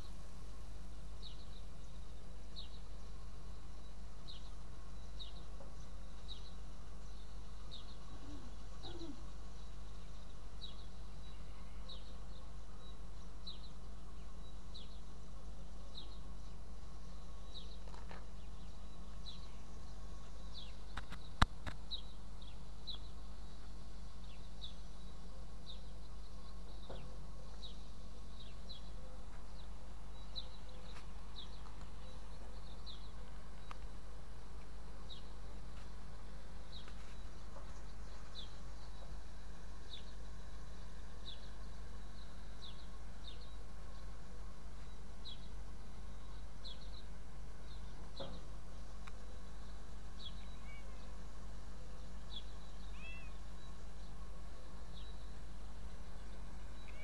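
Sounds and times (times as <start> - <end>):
steady low hum: 0.0 - 57.0
small bird chirping: 1.2 - 15.1, 44.8 - 51.2, 52.0 - 54.2, 54.8 - 57.0.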